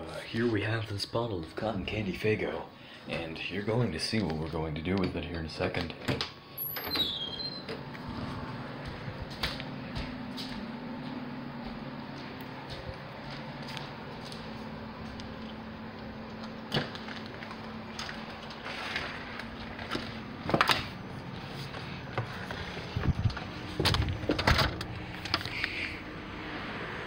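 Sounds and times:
low steady hum: 0:00.0 - 0:27.0
doors opening and closing: 0:05.7 - 0:10.5, 0:15.4 - 0:26.6.

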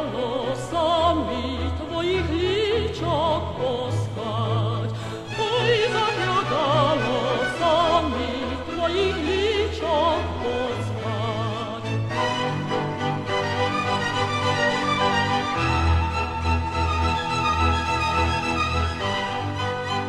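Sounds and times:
woman singing opera: 0:00.0 - 0:12.1
orchestral accompaniment: 0:00.0 - 0:20.0.

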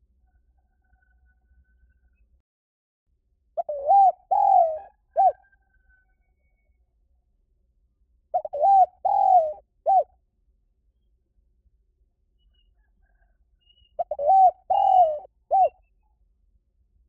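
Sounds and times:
dove cooing: 0:03.6 - 0:05.5, 0:08.3 - 0:10.1, 0:14.0 - 0:15.8.

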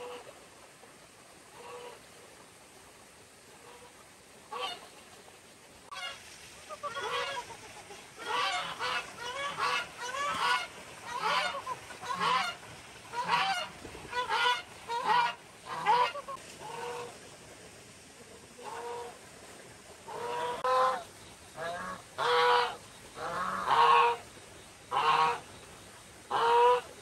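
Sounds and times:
geese honking: 0:05.9 - 0:17.1, 0:20.1 - 0:21.0, 0:21.6 - 0:24.2, 0:24.9 - 0:25.4, 0:26.3 - 0:26.9.

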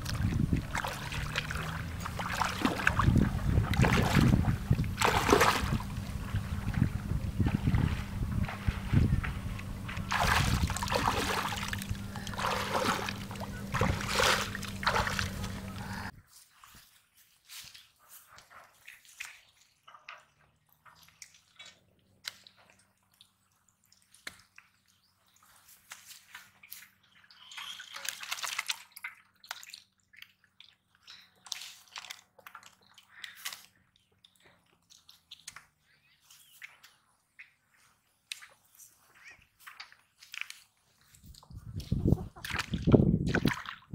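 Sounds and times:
steady low hum: 0:00.0 - 0:16.1
water gushing from a pipe: 0:00.0 - 0:16.1
wet mud squelches and slaps: 0:00.0 - 0:16.1, 0:27.6 - 0:43.9.

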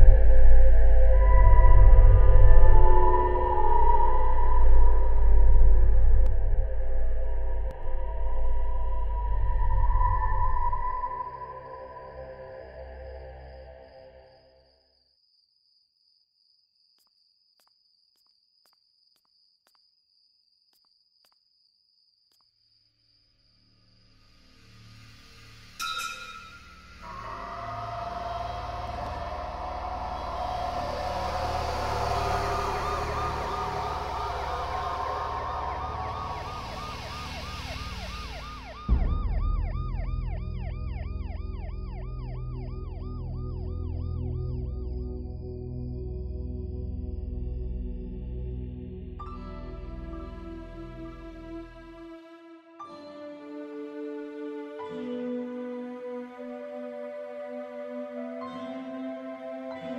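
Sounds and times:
steady low rumble: 0:00.0 - 0:11.0, 0:27.0 - 0:49.2
police siren yelping: 0:27.1 - 0:45.3.

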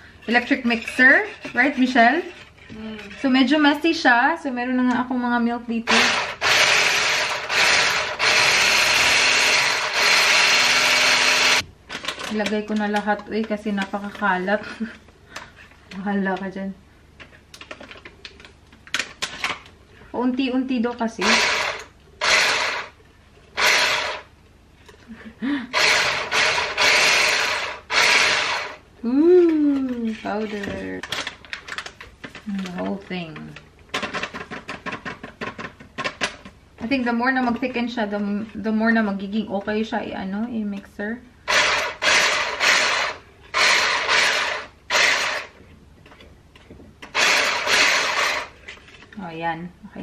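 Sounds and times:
electric whisk whipping: 0:05.9 - 0:11.6, 0:21.2 - 0:23.0, 0:23.6 - 0:24.3, 0:25.7 - 0:28.8, 0:41.5 - 0:45.6, 0:47.1 - 0:48.6.

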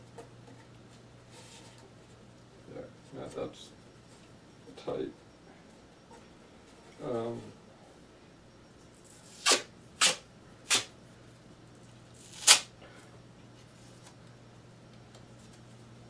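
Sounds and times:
adhesive tape ripping: 0:09.2 - 0:10.9, 0:12.2 - 0:12.7.

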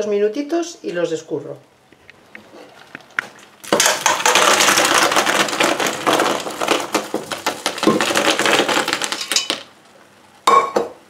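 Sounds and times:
snail shells clattering on metal: 0:03.7 - 0:09.7.

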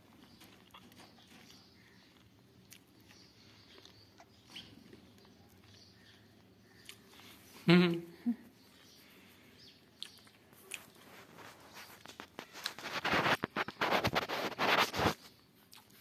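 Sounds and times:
rustling of blanket and fur: 0:10.6 - 0:15.4.

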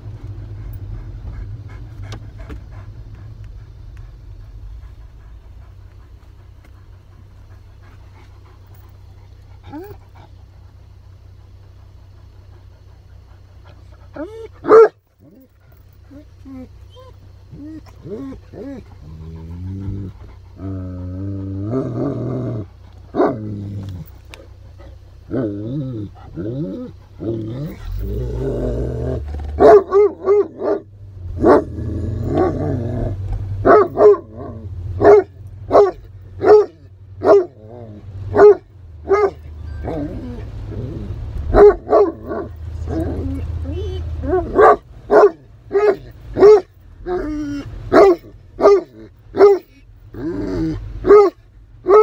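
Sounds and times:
dogs whining and yowling: 0:00.0 - 0:52.0
low car hum: 0:00.0 - 0:52.0
dogs barking: 0:12.6 - 0:16.2, 0:23.1 - 0:23.4, 0:29.2 - 0:49.8, 0:50.6 - 0:52.0.

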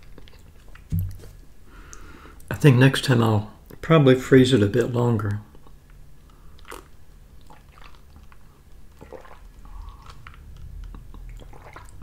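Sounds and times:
man sipping and swallowing: 0:07.5 - 0:11.9.

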